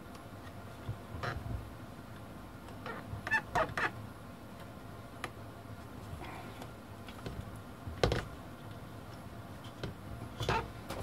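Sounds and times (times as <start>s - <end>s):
rubber squeaking against plastic: 2.8s - 4.0s.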